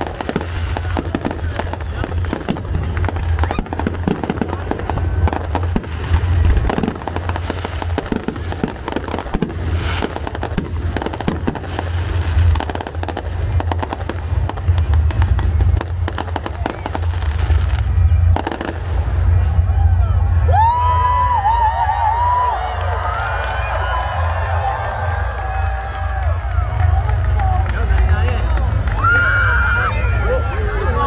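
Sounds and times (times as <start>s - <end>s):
fireworks bangs and crackles: 0.0s - 31.0s.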